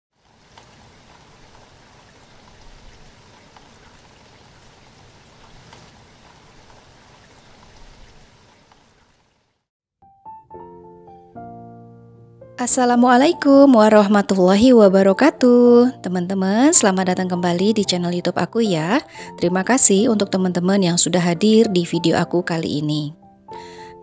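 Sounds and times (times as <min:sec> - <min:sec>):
music with sustained keyboard notes: 0:10.0 - 0:24.0.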